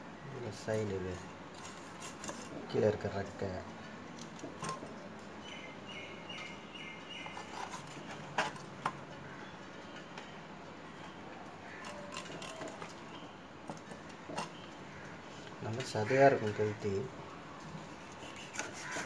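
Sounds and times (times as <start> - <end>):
outdoor background noise: 0.0 - 19.0
knife cutting fish fin: 18.0 - 19.0.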